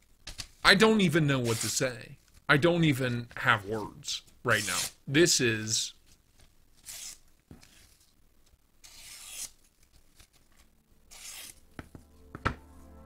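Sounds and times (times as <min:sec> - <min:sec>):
knife slicing paper: 0:08.8 - 0:10.3, 0:11.1 - 0:11.6.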